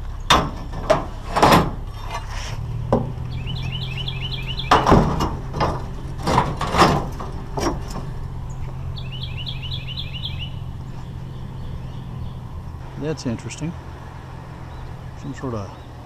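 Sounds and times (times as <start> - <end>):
steel poles clanking on metal: 0.0 - 3.8, 4.5 - 8.6
low hum: 0.0 - 16.0
bird trilling: 3.3 - 5.0, 8.2 - 12.8.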